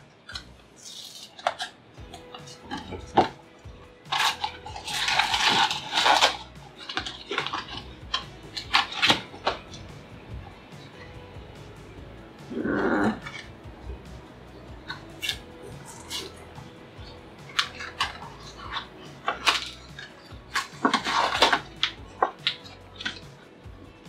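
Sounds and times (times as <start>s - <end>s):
cardboard tearing and rustling: 4.1s - 7.9s, 17.5s - 23.2s.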